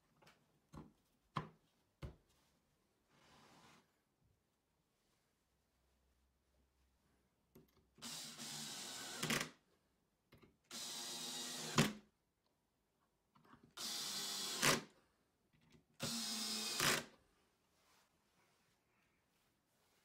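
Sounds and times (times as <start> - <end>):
power drill driving screws: 8.0 - 9.6, 10.7 - 12.0, 13.8 - 14.9, 16.0 - 17.1.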